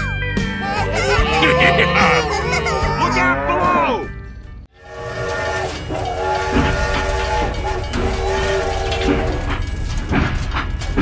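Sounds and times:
toy train whistle: 4.8s - 9.6s.

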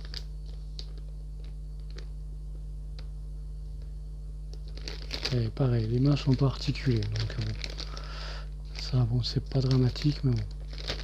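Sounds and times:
plastic bags crinkling: 0.0s - 2.1s, 4.5s - 11.0s
steady low hum: 0.0s - 11.0s.

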